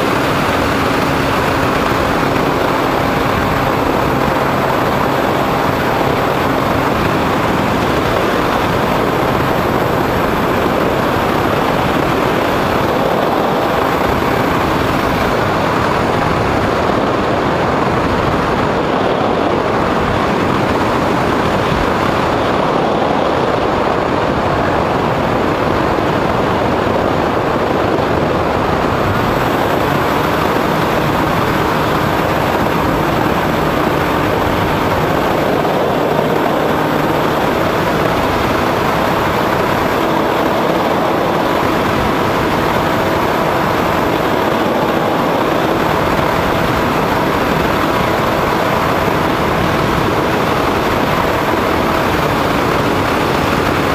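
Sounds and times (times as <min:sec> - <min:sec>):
model airplane motor and propeller: 0:00.0 - 0:53.9
wind rushing over microphone: 0:00.0 - 0:53.9.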